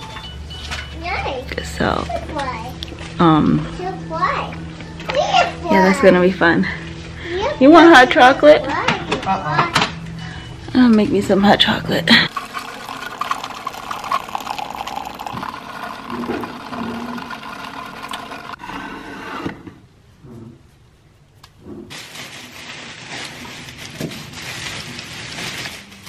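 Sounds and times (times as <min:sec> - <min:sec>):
coffee maker pump running: 0:11.6 - 0:18.7
liquid pouring into mug: 0:12.3 - 0:18.6.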